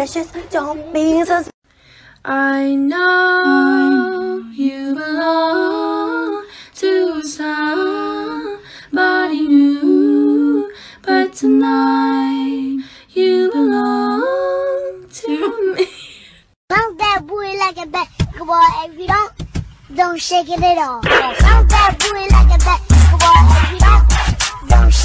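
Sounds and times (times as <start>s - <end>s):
woman singing wordless melody: 2.2s - 16.1s.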